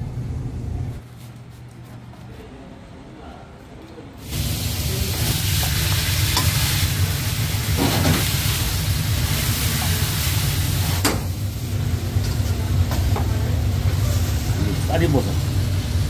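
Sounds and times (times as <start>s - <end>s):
steady low hum: 0.0s - 16.0s
food sizzling in a wok: 4.2s - 16.0s.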